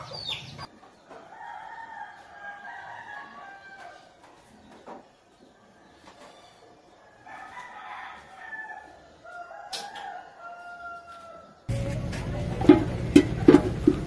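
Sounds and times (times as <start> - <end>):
rooster crowing: 1.2 - 4.1, 7.2 - 11.8
loud steady rumble: 11.7 - 14.0.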